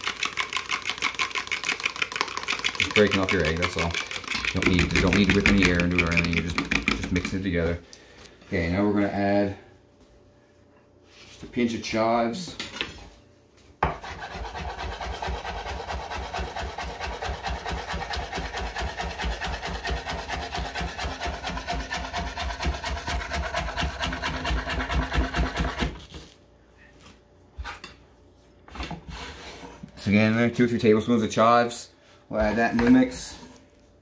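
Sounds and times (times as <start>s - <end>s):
knife chopping on cutting board: 13.8s - 26.0s.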